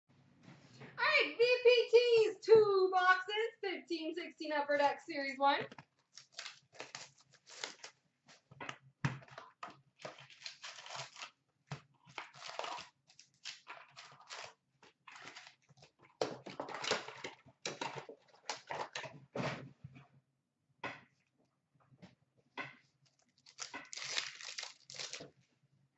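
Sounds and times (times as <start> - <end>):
foil packs crinkling and rustling: 6.0 - 8.5, 9.3 - 11.4, 12.0 - 19.0, 23.3 - 25.3.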